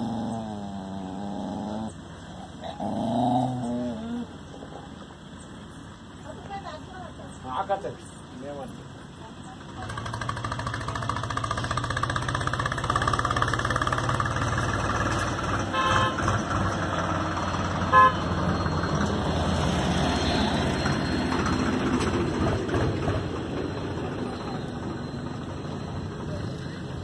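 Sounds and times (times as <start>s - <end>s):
vehicle engine running: 8.9s - 19.6s
car horn toots: 15.7s - 16.4s, 17.9s - 18.4s.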